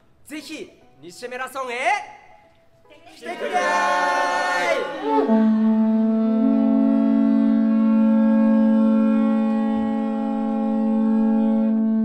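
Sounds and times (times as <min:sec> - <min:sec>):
conch shell trumpet note: 0:05.0 - 0:12.0.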